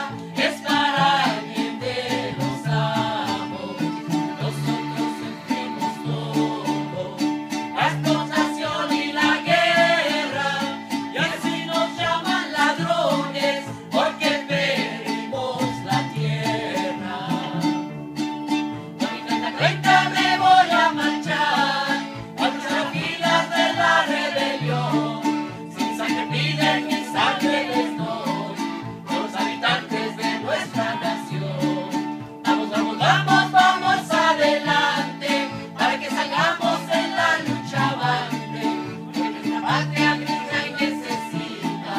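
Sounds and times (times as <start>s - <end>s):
person singing: 0.0s - 17.7s, 19.0s - 41.9s
repeating bass line: 0.0s - 28.6s
accordion: 0.0s - 41.9s
strummed acoustic guitar: 0.0s - 41.9s.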